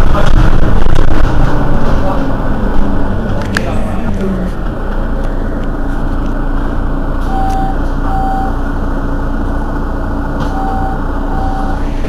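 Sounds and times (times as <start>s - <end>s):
bus engine idling: 0.0s - 12.0s
short high warning beep: 7.3s - 8.6s, 10.6s - 11.8s.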